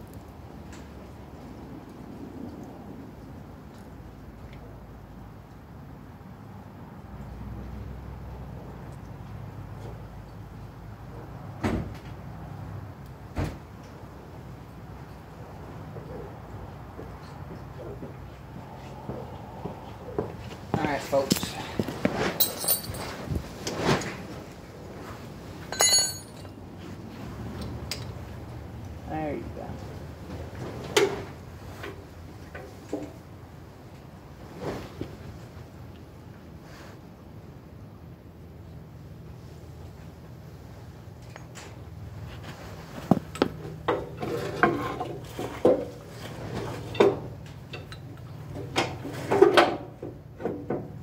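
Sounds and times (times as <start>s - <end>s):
metal hand tools clinking: 22.4s - 23.2s, 25.7s - 26.6s
ringing clink of metal on metal: 25.7s - 26.4s.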